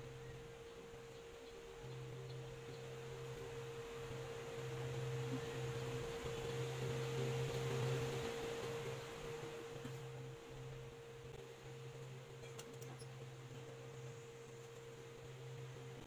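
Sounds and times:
high-pitched hum: 0:00.0 - 0:16.0
low hum: 0:00.0 - 0:16.0
soft hiss: 0:00.0 - 0:16.0.

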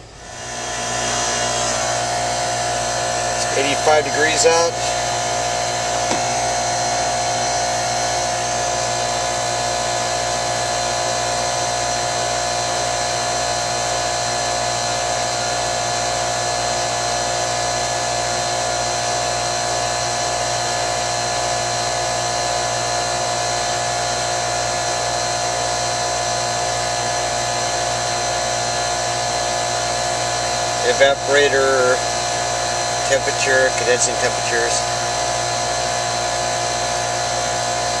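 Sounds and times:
air conditioning unit humming: 0:00.0 - 0:22.7.

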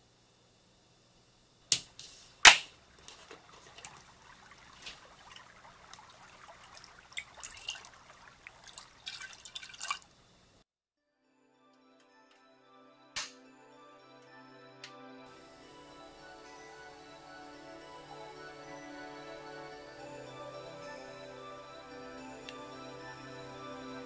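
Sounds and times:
milk pouring into metal saucepan: 0:03.0 - 0:10.1.

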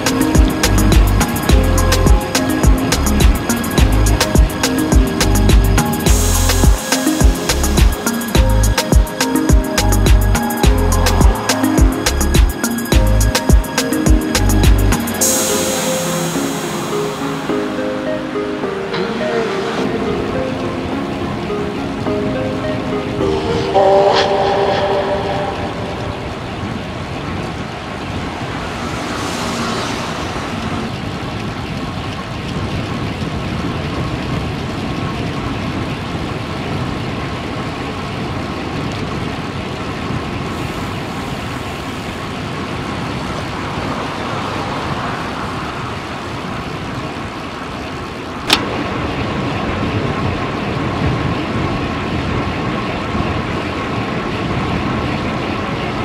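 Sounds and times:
highway traffic noise: 0:00.0 - 0:21.8, 0:22.4 - 0:32.6, 0:40.4 - 0:48.7.

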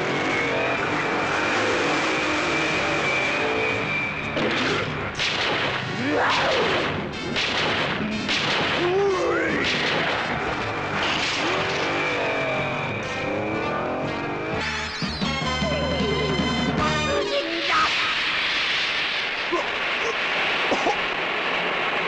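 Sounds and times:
race car engine running: 0:00.0 - 0:04.4, 0:10.2 - 0:14.8
blasts: 0:00.0 - 0:15.0, 0:17.0 - 0:22.0.

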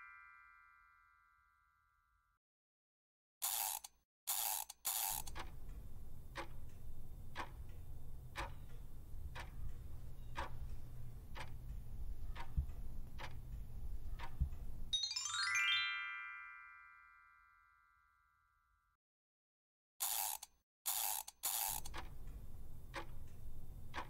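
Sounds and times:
rising chime tones: 0:00.0 - 0:01.4, 0:14.9 - 0:18.0
countdown timer ticking: 0:05.2 - 0:15.0.

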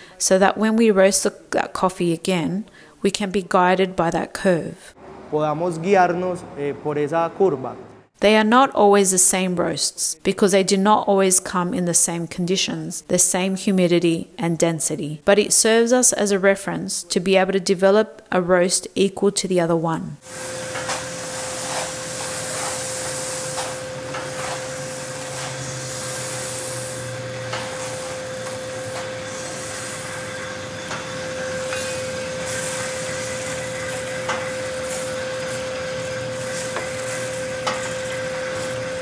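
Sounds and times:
coffee beans tumbling in drum: 0:20.2 - 0:39.0
machine hum: 0:20.2 - 0:39.0.

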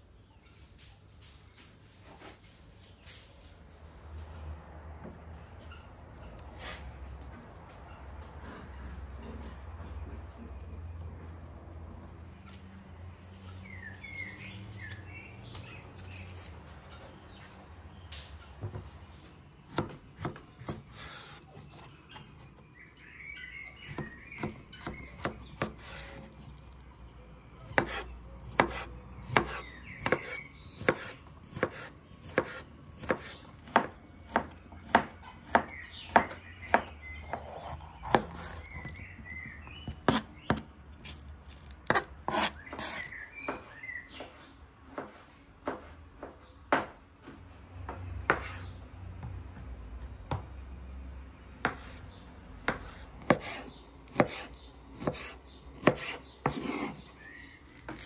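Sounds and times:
birds chirping faintly: 0:00.0 - 0:58.0
knife chopping on wooden board: 0:19.6 - 0:21.9, 0:23.8 - 0:26.4, 0:27.6 - 0:43.6, 0:47.9 - 0:48.6, 0:51.6 - 0:52.0, 0:52.6 - 0:57.0.

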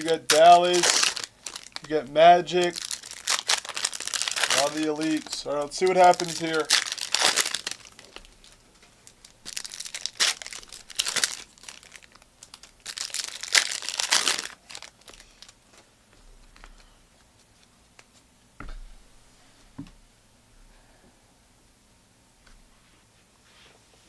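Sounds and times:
card pack wrappers tearing: 0:00.0 - 0:15.6.

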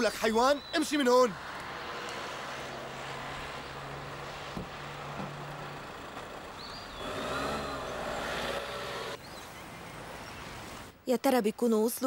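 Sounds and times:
van engine revving: 0:01.8 - 0:09.2.

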